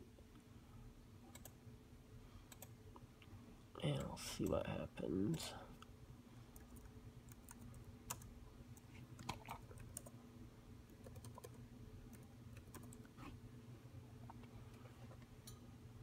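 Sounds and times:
keyboard typing clicks: 1.3s - 1.5s, 11.0s - 13.0s.

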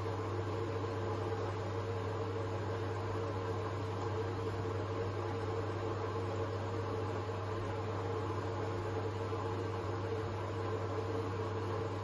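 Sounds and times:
washing machine humming: 0.0s - 12.0s.

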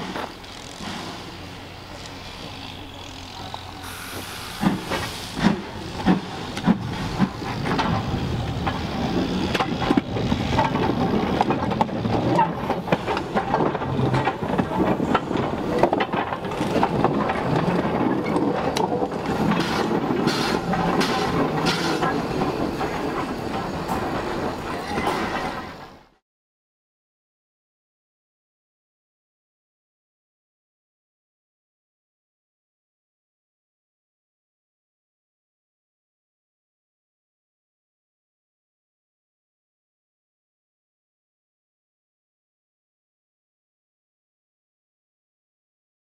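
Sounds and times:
steam locomotive hiss: 0.0s - 9.5s, 19.6s - 25.9s
steam locomotive exhaust beats: 0.0s - 26.1s.

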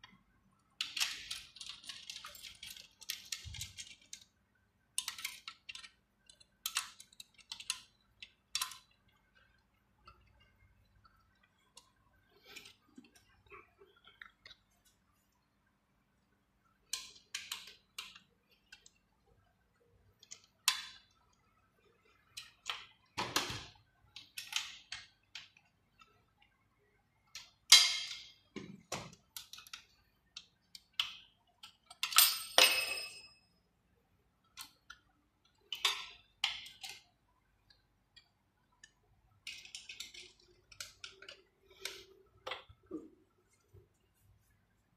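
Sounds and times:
metal parts and tools clinking: 0.8s - 4.2s, 31.6s - 33.4s, 39.4s - 42.7s.

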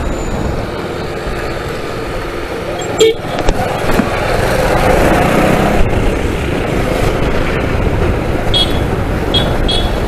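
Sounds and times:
motorcycle engine: 0.1s - 10.0s
wind rush: 3.3s - 9.8s.

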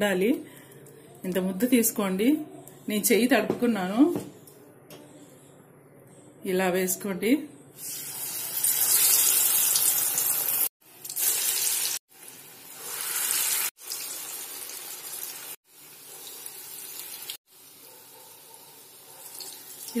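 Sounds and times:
batter sizzling in hot oil: 7.8s - 17.8s.

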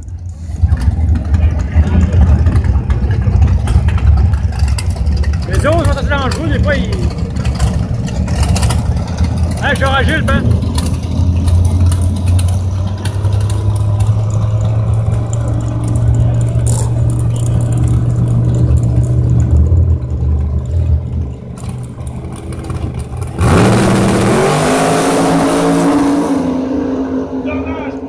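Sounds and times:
car engine idling: 0.0s - 28.0s
engine revving at full throttle: 5.5s - 19.5s, 22.6s - 28.0s.

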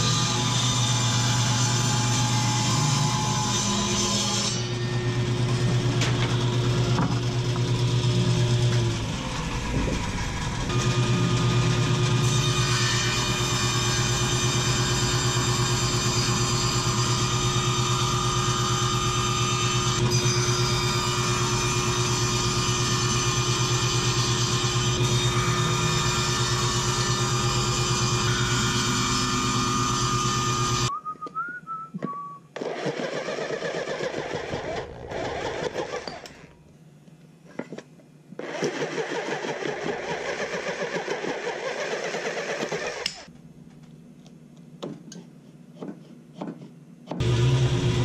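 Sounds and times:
table saw motor humming: 0.0s - 30.9s, 47.2s - 48.0s.

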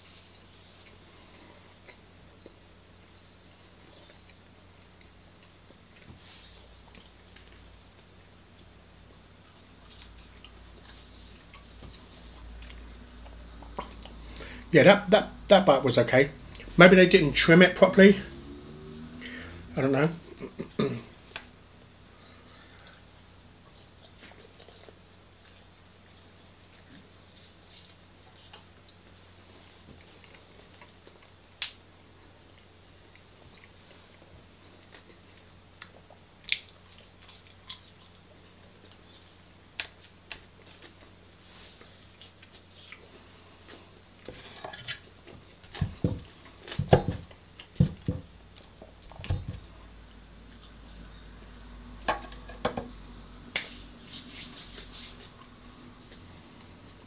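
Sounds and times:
person chewing: 6.8s - 14.4s, 23.7s - 44.0s
knocks and thuds on table: 46.8s - 48.3s.

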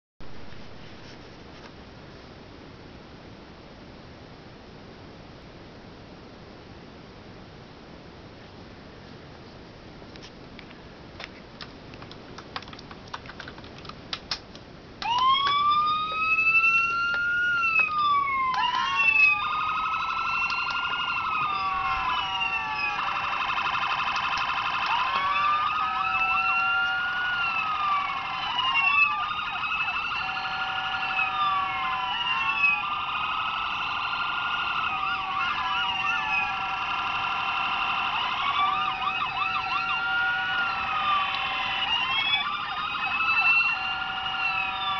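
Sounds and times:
toy siren wailing: 15.0s - 44.9s
warbling siren tone: 15.0s - 44.9s.

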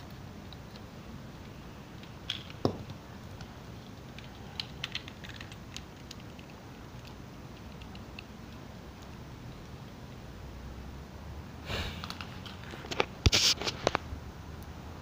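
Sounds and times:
plastic bricks clicking: 2.0s - 3.5s, 4.1s - 9.1s.

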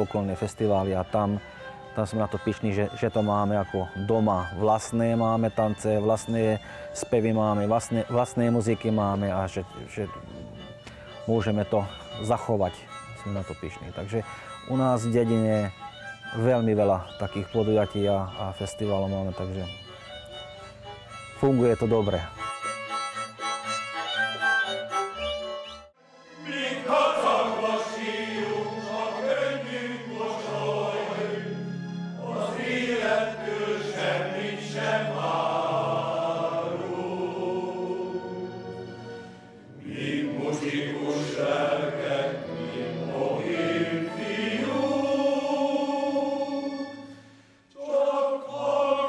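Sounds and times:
choir singing: 26.0s - 49.0s.

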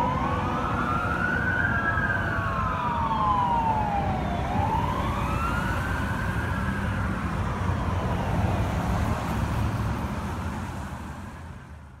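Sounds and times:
fire engine mechanical siren: 0.0s - 9.3s
low rumble of traffic: 0.0s - 12.0s.

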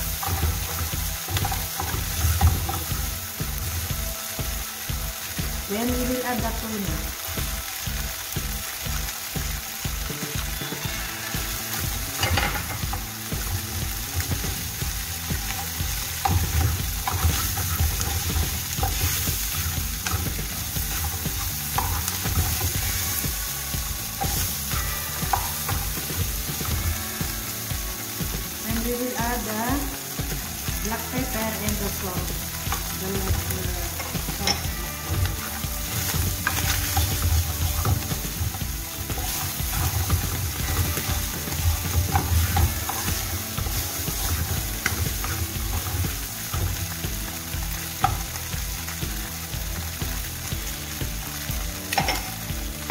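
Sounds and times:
fish sizzling in a pan: 0.0s - 52.9s
wooden spatula scraping a pan: 34.0s - 46.2s.

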